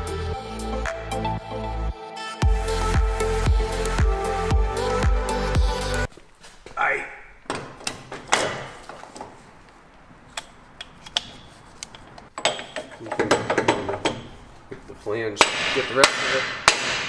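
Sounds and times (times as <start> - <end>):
light metal clicks and knocks: 10.4 - 14.4.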